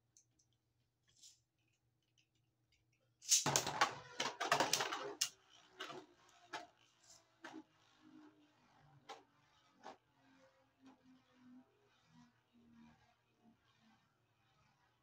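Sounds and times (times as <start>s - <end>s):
spinning tops clattering in plastic stadium: 3.2s - 6.8s.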